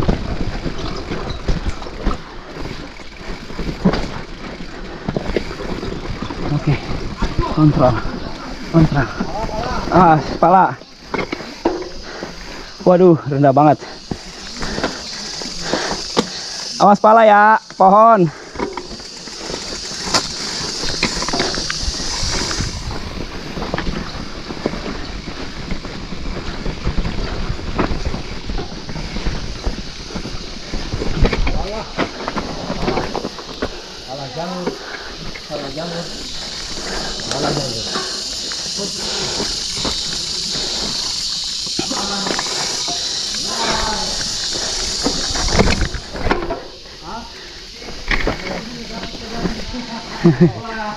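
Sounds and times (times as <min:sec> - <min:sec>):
bike tyres clattering over stones: 0:00.0 - 0:50.9
insects droning: 0:00.0 - 0:50.9
steady high hiss: 0:00.0 - 0:50.9
wind on microphone: 0:21.0 - 0:25.0.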